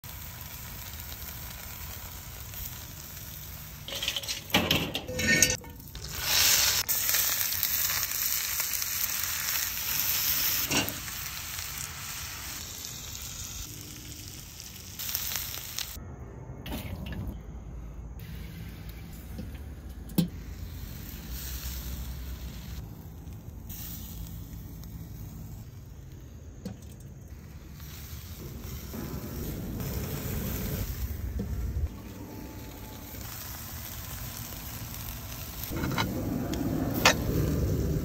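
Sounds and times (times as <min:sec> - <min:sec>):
vegetables sizzling in a skillet: 0:00.0 - 0:04.5, 0:05.2 - 0:16.0, 0:20.3 - 0:26.4, 0:27.2 - 0:36.2
metal tongs stirring: 0:03.9 - 0:06.1.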